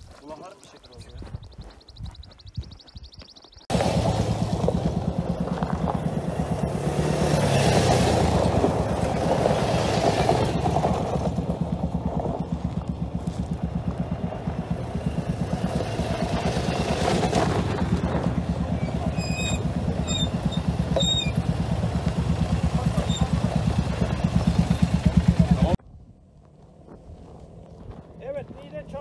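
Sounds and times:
quad bike engine running: 3.7 - 25.8.

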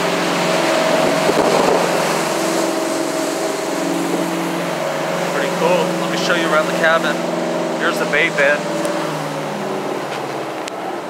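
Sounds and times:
boat engine droning: 0.0 - 11.0
rushing water: 0.0 - 11.0
wind buffeting microphone: 0.1 - 10.7.

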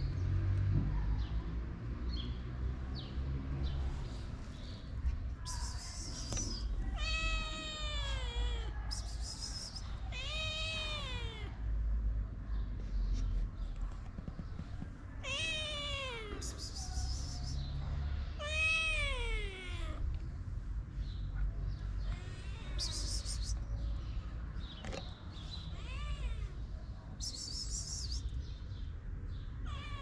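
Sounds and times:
cat meowing: 5.8 - 9.5, 10.1 - 11.6, 15.2 - 16.5, 18.4 - 20.0, 25.6 - 26.6, 29.6 - 30.0.

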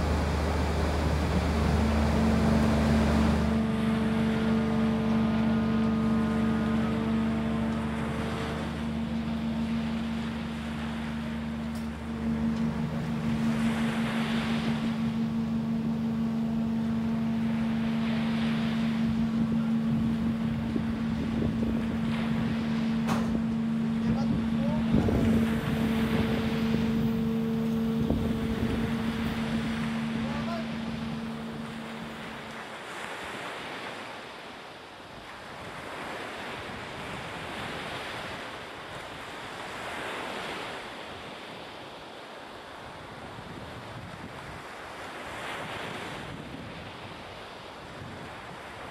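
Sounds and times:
wind on microphone: 0.0 - 32.6
crane hoisting: 0.0 - 33.2
sea noise: 0.0 - 48.9
ship machinery hum: 0.0 - 48.9.

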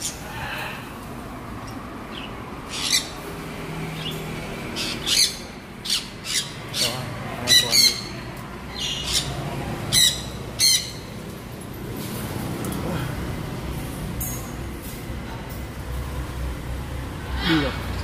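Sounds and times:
parrots squawking: 2.1 - 3.3, 4.0 - 11.2.

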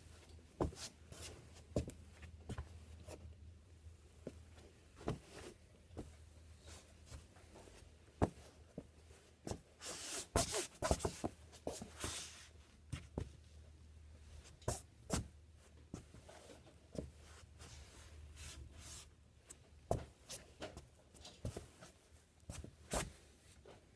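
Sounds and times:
boots scuffing on foam mat: 0.6 - 2.7, 5.0 - 6.2, 7.0 - 13.4.

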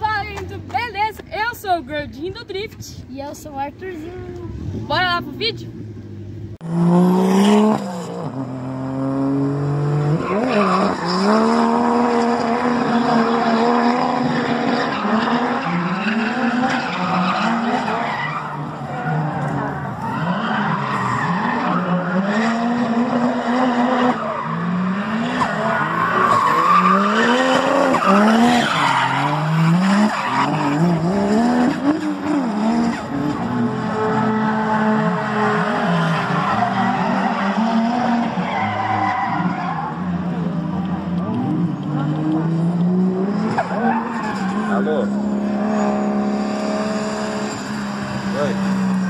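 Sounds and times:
car engine revving: 4.2 - 49.0
tyres squealing: 24.0 - 31.1.

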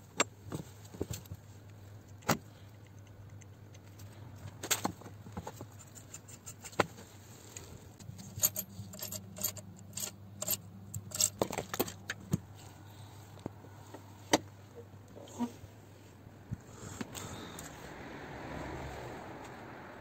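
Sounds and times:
light metallic clinks and knocks: 8.0 - 12.4.

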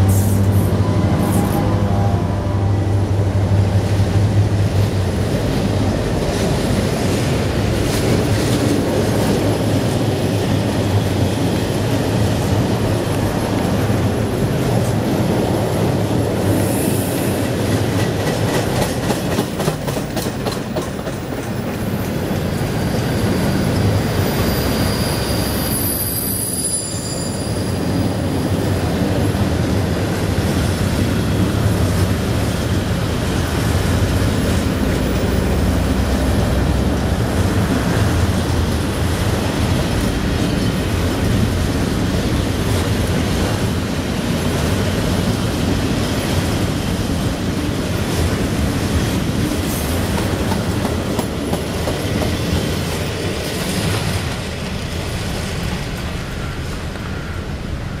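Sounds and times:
train wheels rumbling on rails: 0.0 - 58.0
high wheel squeal: 24.0 - 28.3.

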